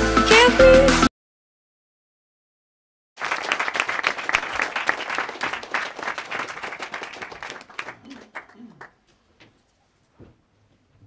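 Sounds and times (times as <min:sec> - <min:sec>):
audience applauding: 0:03.2 - 0:09.0.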